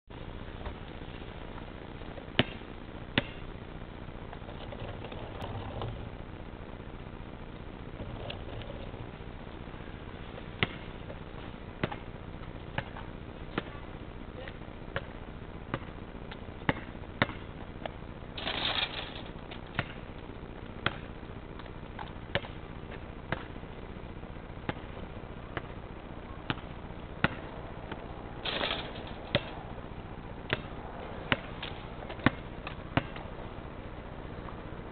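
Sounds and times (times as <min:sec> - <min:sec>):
basketball bouncing on asphalt: 0:00.2 - 0:06.0, 0:07.5 - 0:34.8.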